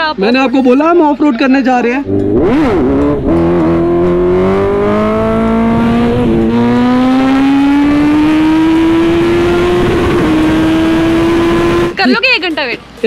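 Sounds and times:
motorcycle engine accelerating: 0:02.0 - 0:12.2.

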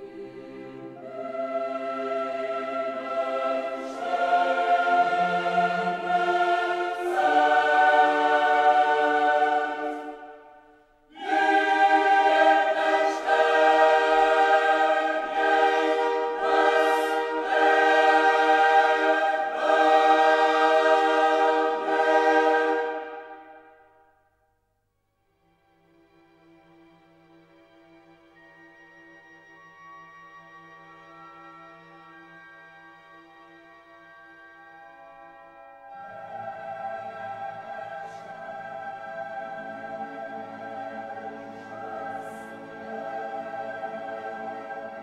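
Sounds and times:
choir singing held chords: 0:00.0 - 0:24.0, 0:35.8 - 0:45.0.

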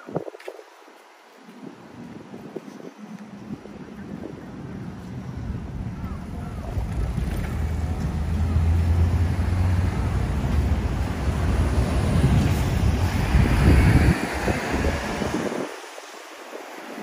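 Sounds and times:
wind rumbling on microphone: 0:00.0 - 0:17.0
city street traffic: 0:00.9 - 0:17.0
heavy vehicle engine drone: 0:04.4 - 0:15.7.

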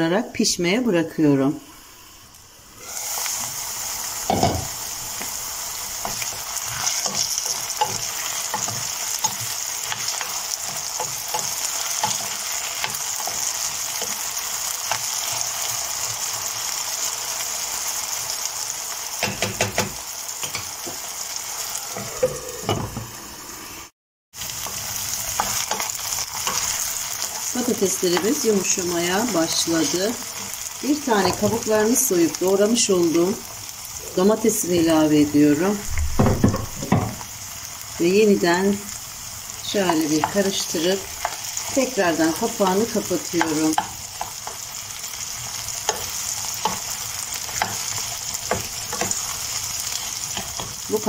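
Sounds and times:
potatoes sizzling in oil: 0:01.2 - 0:36.0, 0:36.8 - 0:51.0
spoon knocking against pan: 0:19.2 - 0:20.7.

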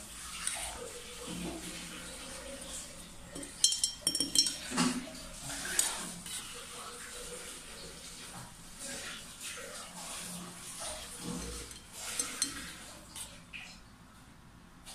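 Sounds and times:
spoon clinking against glass jar: 0:03.3 - 0:05.0, 0:11.4 - 0:12.8
metal spoon scraping a pot: 0:03.4 - 0:05.0, 0:11.2 - 0:12.9.

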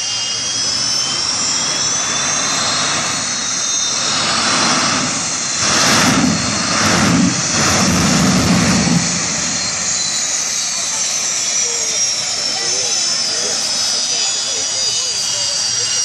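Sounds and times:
turbine engine whine: 0:00.0 - 0:16.0.

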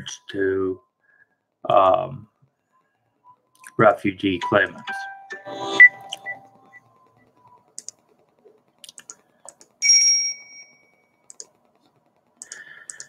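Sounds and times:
computer key clicks: 0:07.8 - 0:08.0, 0:11.3 - 0:11.6, 0:12.4 - 0:13.0.

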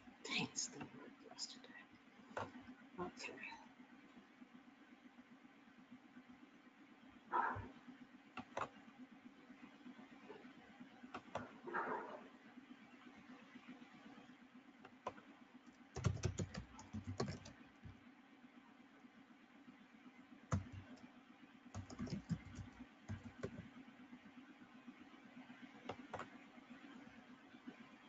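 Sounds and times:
faint low steady hum: 0:00.0 - 0:28.0
typing on computer keyboard: 0:16.0 - 0:18.0, 0:20.5 - 0:21.0, 0:21.7 - 0:23.7, 0:25.9 - 0:26.3.

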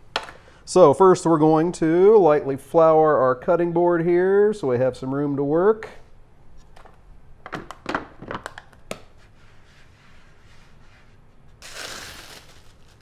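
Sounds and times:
hand swishing flour: 0:09.1 - 0:12.8.

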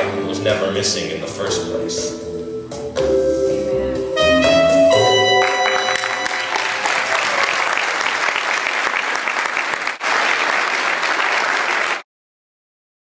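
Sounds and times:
music: 0:00.0 - 0:07.6
audience applauding: 0:05.4 - 0:12.0.

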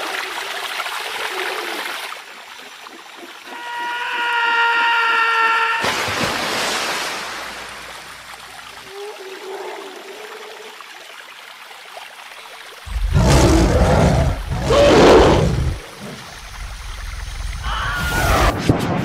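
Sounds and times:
water splash: 0:05.8 - 0:08.8
water trickling: 0:06.4 - 0:17.7
dinosaur roars: 0:12.9 - 0:16.2.

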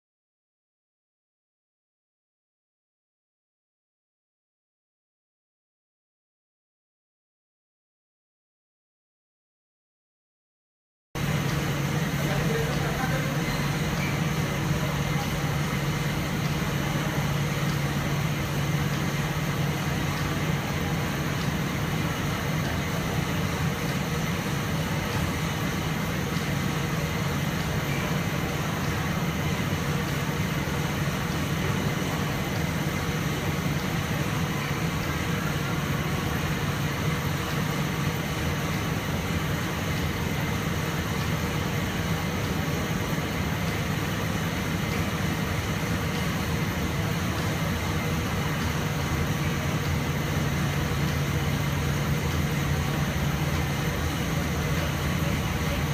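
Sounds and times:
printing press drone: 0:11.2 - 0:55.9.

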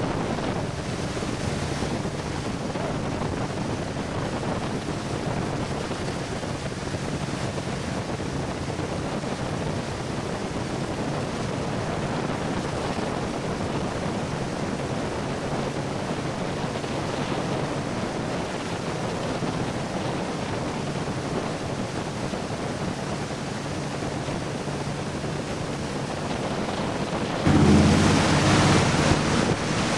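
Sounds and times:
boat engine humming: 0:00.0 - 0:08.9, 0:22.0 - 0:29.9
wind noise on microphone: 0:00.0 - 0:29.9
water spray rushing: 0:27.4 - 0:29.9.

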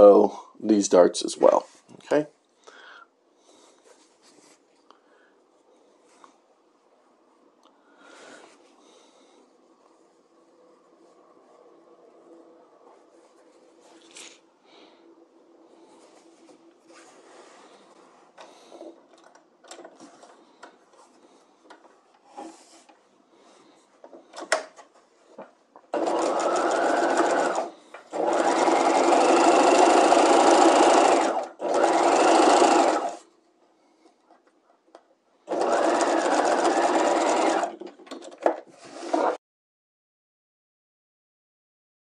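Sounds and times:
sewing machine stitching: 0:25.9 - 0:33.2, 0:35.5 - 0:37.9, 0:38.9 - 0:39.4.

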